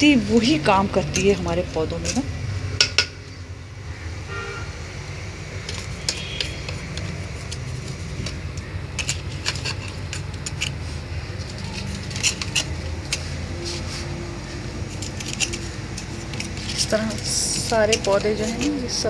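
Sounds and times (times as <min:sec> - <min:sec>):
metal tool scraping soil: 0:05.6 - 0:19.0.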